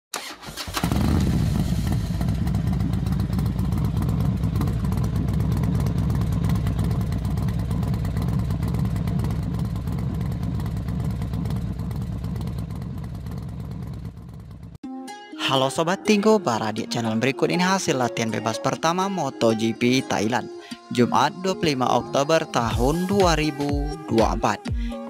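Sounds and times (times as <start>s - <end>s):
motorcycle engine running: 0.6s - 14.8s, 22.7s - 25.0s.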